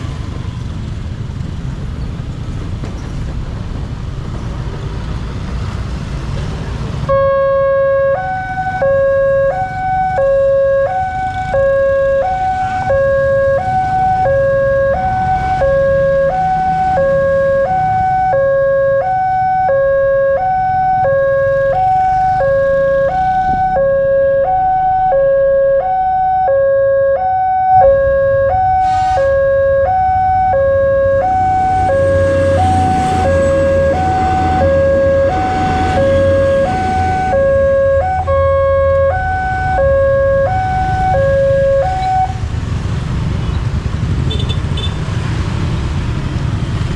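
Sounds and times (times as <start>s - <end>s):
two-tone crossing alarm chime: 7.1s - 42.3s
passing train rumble: 27.7s - 44.3s.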